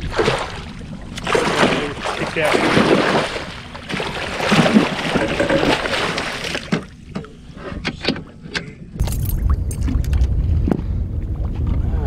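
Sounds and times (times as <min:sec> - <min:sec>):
fish splashing in a net: 0:01.2 - 0:06.7.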